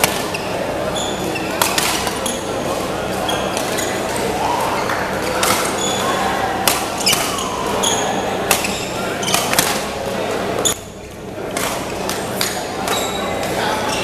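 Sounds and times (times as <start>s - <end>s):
rackets hitting shuttlecocks: 0.0s - 0.3s, 1.5s - 2.2s, 6.6s - 7.8s, 8.4s - 10.0s
murmur of voices: 0.0s - 14.0s.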